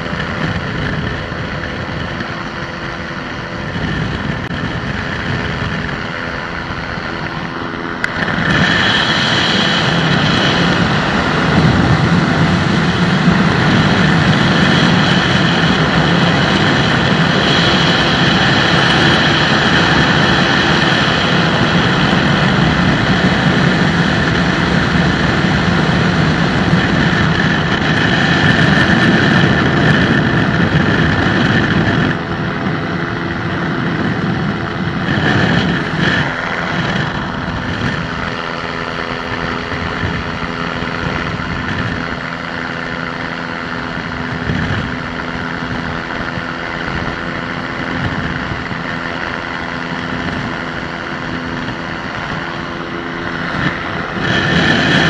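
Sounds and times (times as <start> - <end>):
aircraft engine and propeller: 0.0 - 55.0
wind rush: 0.0 - 55.0.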